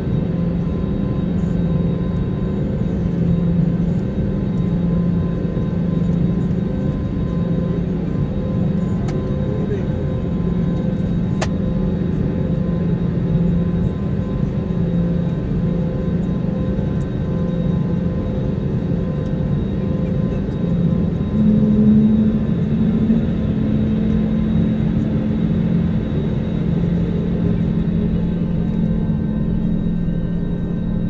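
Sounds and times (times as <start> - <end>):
jet engines idling: 0.0 - 31.0
higher louder hum: 20.9 - 31.0.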